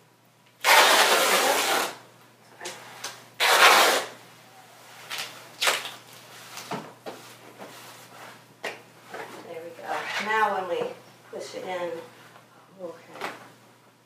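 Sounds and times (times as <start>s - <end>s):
duct tape pulled off roll: 0.6s - 2.0s, 3.4s - 4.2s
tape tearing: 0.6s - 2.0s, 3.0s - 4.2s, 5.0s - 6.7s.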